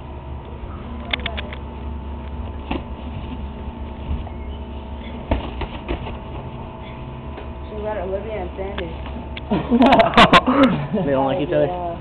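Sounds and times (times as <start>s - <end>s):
boxing gloves slapping: 5.3s - 6.2s.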